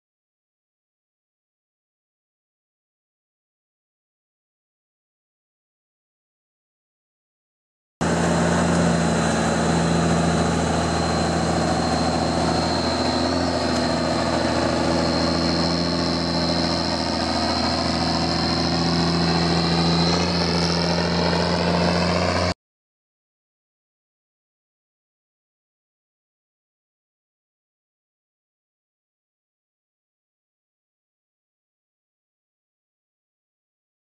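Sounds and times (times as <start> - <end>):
steady high whine: 8.0 - 22.6
truck engine running: 8.0 - 22.6.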